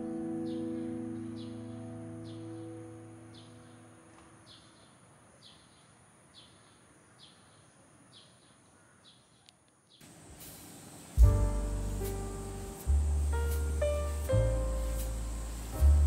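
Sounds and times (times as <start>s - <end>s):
piano notes: 0.0s - 4.5s, 11.2s - 16.0s
bird chirping: 0.0s - 16.0s.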